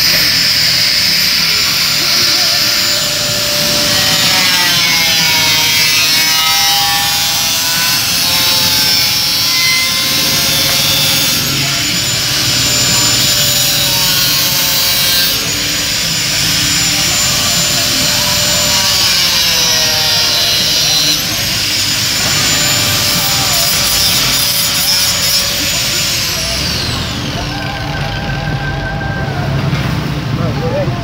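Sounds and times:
angle grinder cutting steel sheet: 0:00.0 - 0:29.0.

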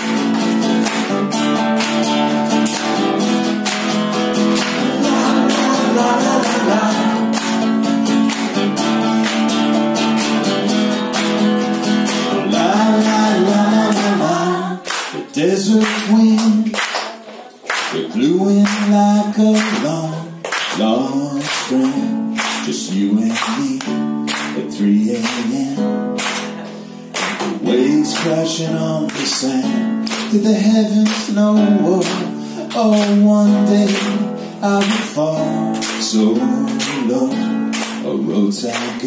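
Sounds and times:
acoustic guitar strumming: 0:00.0 - 0:16.8, 0:17.8 - 0:39.0
man singing: 0:04.3 - 0:07.7, 0:12.2 - 0:16.9, 0:17.9 - 0:26.1, 0:27.5 - 0:39.0.

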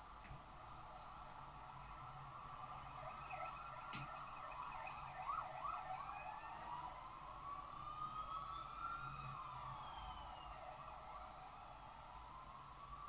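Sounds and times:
faint wailing siren: 0:00.5 - 0:13.0.

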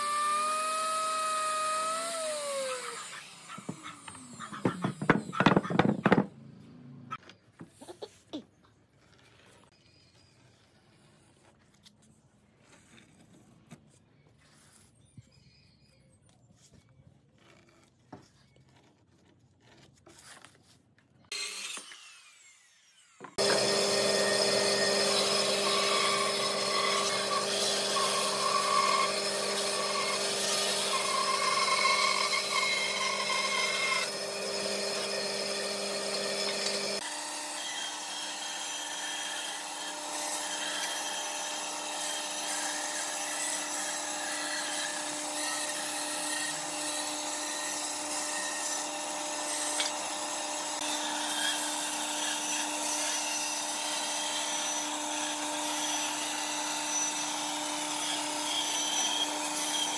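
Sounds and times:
band saw cutting wood: 0:00.0 - 0:06.3, 0:21.3 - 0:59.9.

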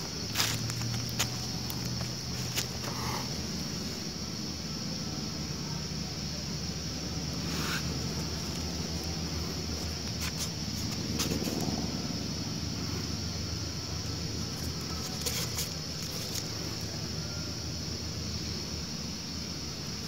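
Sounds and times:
steady low rumble: 0:00.0 - 0:15.1
constant high hiss: 0:00.0 - 0:20.0.

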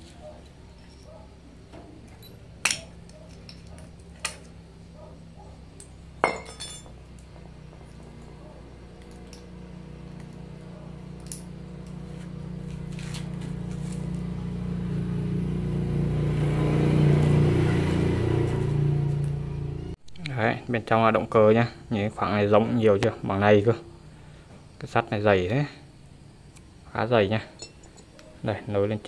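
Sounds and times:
metal clinks on concrete: 0:00.7 - 0:04.5, 0:05.8 - 0:07.0, 0:27.6 - 0:28.3
low engine hum: 0:06.9 - 0:20.0.

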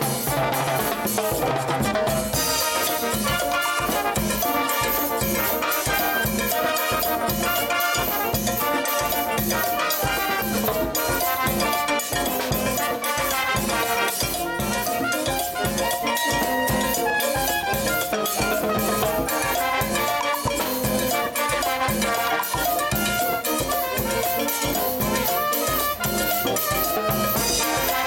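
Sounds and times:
brass band playing: 0:00.0 - 0:28.0
drums and congas beat: 0:00.0 - 0:28.0.

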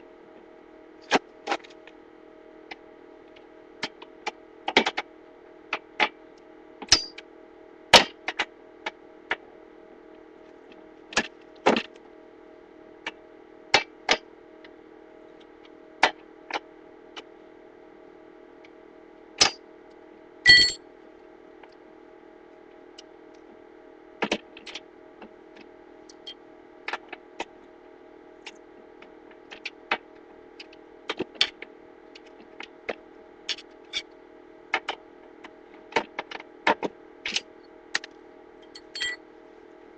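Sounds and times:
low hum: 0:20.5 - 0:20.8, 0:38.6 - 0:39.2
metal tools clinking: 0:20.5 - 0:20.8, 0:38.8 - 0:39.2
ringing metal clink: 0:20.5 - 0:20.8, 0:38.8 - 0:39.2.

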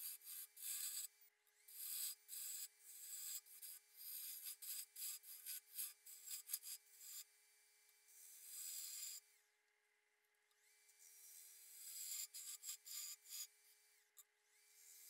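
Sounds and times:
lathe tool cutting wood bowl: 0:00.3 - 0:01.1, 0:11.3 - 0:13.4.

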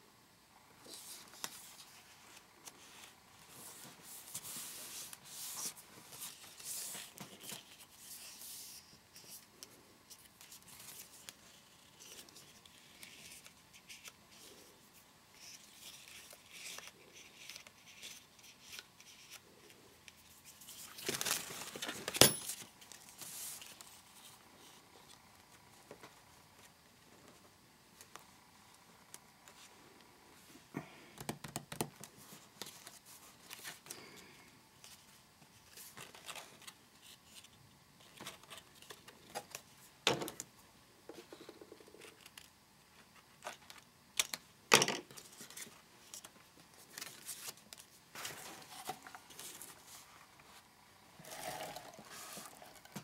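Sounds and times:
paper rustling and scraping: 0:00.8 - 0:09.4.

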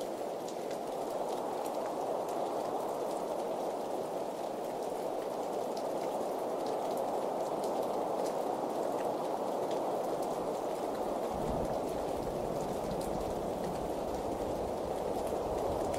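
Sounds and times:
steady rain falling: 0:00.0 - 0:15.9
rain drop ticks: 0:04.4 - 0:15.9.

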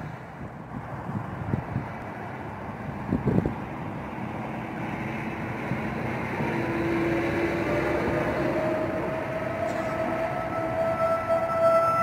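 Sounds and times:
steady rushing background noise: 0:00.0 - 0:11.4
distant warning sirens winding up: 0:03.8 - 0:12.0.

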